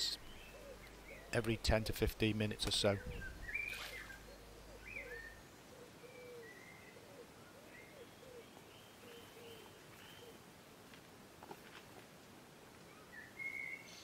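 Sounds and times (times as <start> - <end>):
high whistled birdsong: 0.0 - 1.4, 2.8 - 10.4, 12.9 - 14.0
low repeated bird calls: 0.0 - 10.5, 12.8 - 14.0
soft outdoor hiss: 0.0 - 14.0.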